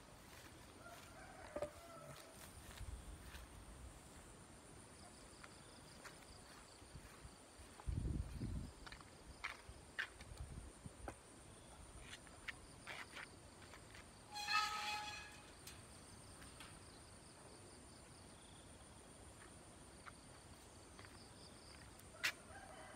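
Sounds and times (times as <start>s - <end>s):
outdoor background hiss: 0.0s - 22.9s.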